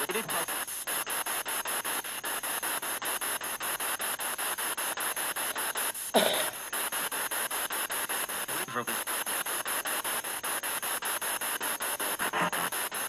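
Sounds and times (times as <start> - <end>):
voice-like radio fragment: 0.0 - 0.7, 8.4 - 9.4, 12.2 - 12.9
choppy radio static: 0.0 - 13.0.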